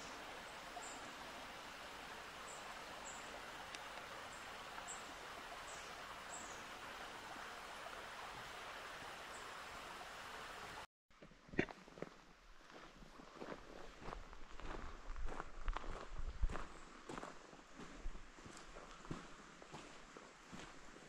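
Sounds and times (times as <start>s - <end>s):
even hiss of water or wind: 0.0s - 10.9s.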